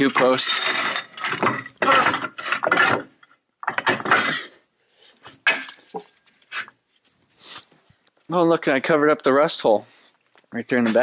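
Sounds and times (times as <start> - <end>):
metal clanking and rattling: 0.0 - 4.4.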